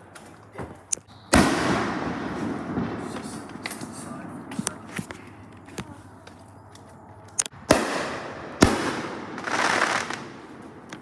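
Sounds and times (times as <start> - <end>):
fireworks bursting: 1.2 - 5.4, 7.6 - 11.0.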